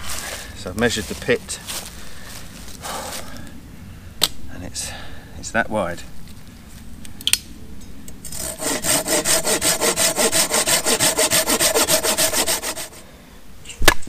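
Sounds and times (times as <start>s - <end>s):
hand saw cutting a log: 8.3s - 13.0s.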